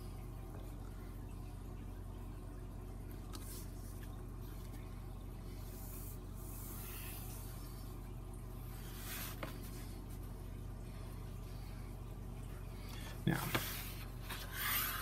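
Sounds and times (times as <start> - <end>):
steady low hum: 0.0 - 15.0
pencil drawn along a metal ruler: 13.7 - 15.0.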